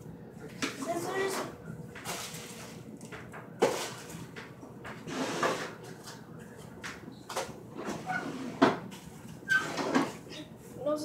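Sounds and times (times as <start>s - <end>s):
kitchen drawers opening and shutting: 5.0s - 5.8s, 7.3s - 8.9s, 9.5s - 10.3s.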